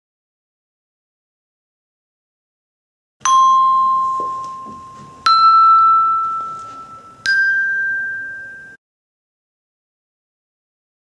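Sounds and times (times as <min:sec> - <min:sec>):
tuned bell tones: 0:03.2 - 0:08.8.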